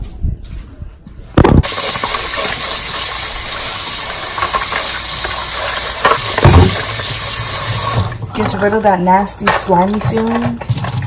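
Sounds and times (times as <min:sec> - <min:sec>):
water pouring over chicken pieces: 0:01.6 - 0:08.1
kitchen tap running: 0:01.6 - 0:11.0
knock: 0:06.4 - 0:06.9.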